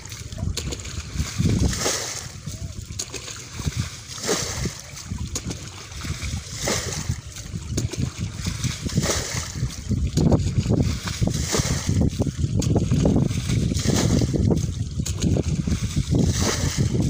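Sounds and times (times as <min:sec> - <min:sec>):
low rumble: 0:00.0 - 0:17.0
scoop splashing water: 0:00.0 - 0:17.0.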